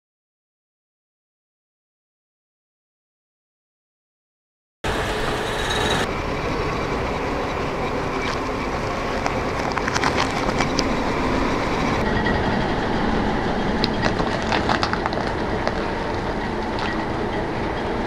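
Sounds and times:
car engine running: 4.8 - 18.0
bananas crackling and squishing: 13.9 - 17.0.

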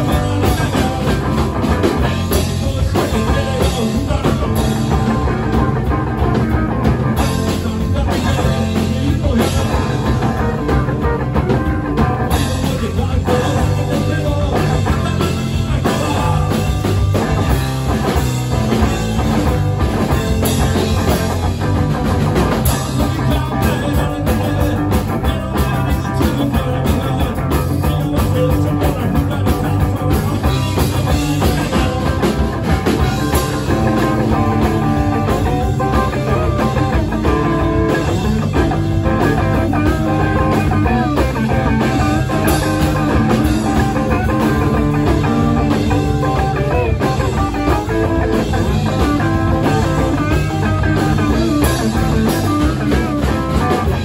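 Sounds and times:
drum kit beat: 0.0 - 54.0
electric guitar: 0.0 - 54.0.

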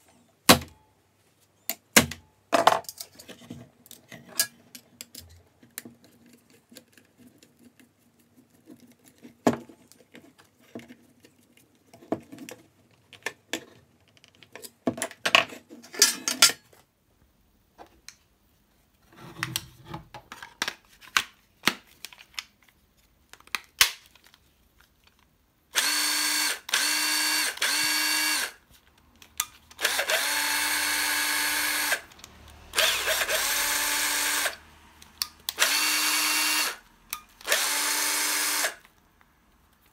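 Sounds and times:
drill motor running: 25.8 - 28.5, 29.8 - 32.0, 32.7 - 34.6, 35.6 - 36.8, 37.4 - 38.8.

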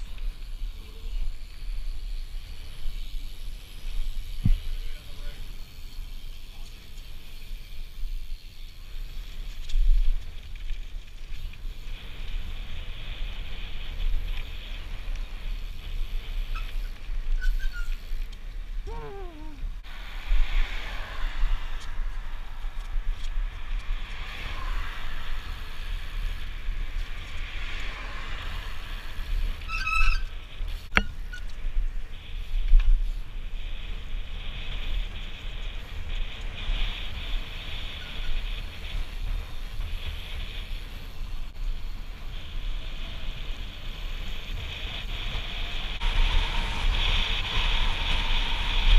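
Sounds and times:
bike tyres rolling on tarmac: 0.0 - 48.9
wind buffeting microphone: 0.0 - 48.9
brief squeaks: 17.4 - 18.0, 29.6 - 30.3.

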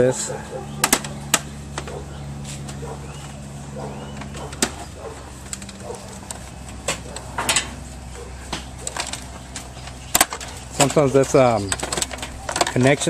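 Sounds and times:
steady low hum: 0.0 - 13.0
tools clicking and rattling: 3.9 - 13.0.

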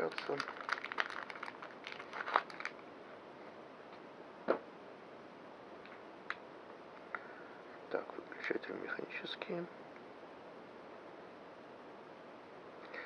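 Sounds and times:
plastic pouch crinkling: 0.0 - 2.8.

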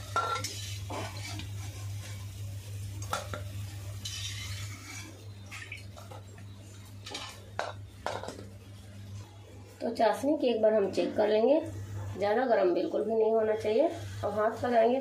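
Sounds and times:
metal skimmer scraping iron pan: 0.0 - 1.5, 4.0 - 5.6
faint oil sizzle: 0.0 - 11.9, 12.5 - 15.0.

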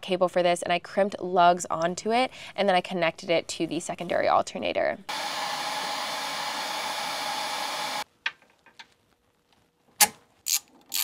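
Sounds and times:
heat gun blowing with high whine: 5.1 - 8.0
tools clicking: 10.0 - 11.0.

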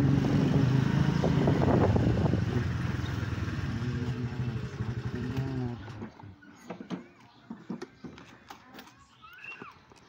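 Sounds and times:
motorcycle engine running: 0.0 - 6.0.

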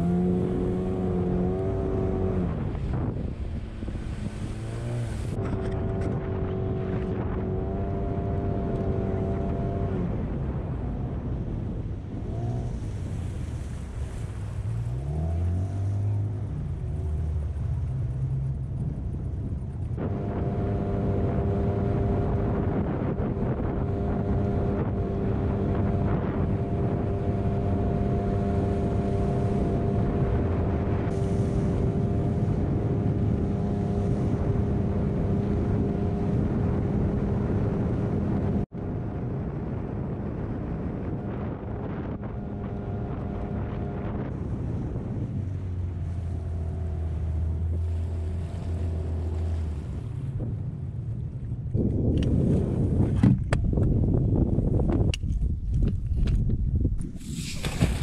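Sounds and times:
outboard motor running: 0.0 - 10.3, 12.2 - 38.6, 41.2 - 50.4.

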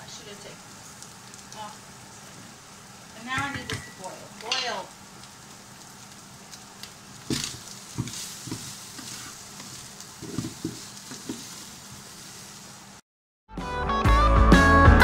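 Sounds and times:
meat sizzling in a frying pan: 0.0 - 13.0
wooden spatula scraping a pan: 7.3 - 12.5.

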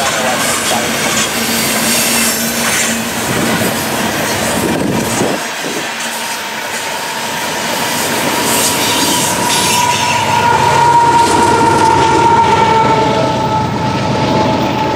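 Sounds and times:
locomotive passing: 0.0 - 14.9
train wheels clattering over rail: 0.0 - 14.9
high-pitched wheel squeal: 8.2 - 14.9.

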